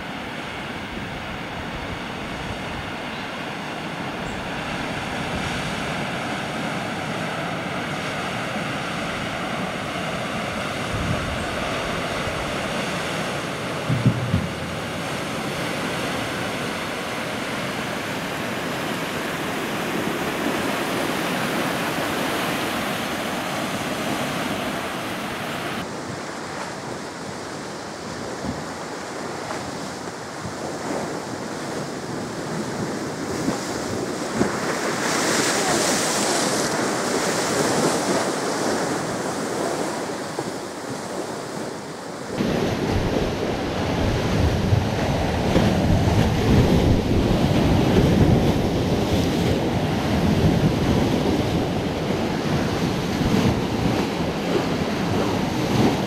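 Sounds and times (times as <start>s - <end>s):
rushing river water: 0.0s - 56.0s
wind on microphone: 0.0s - 56.0s
low thump: 13.9s - 14.9s.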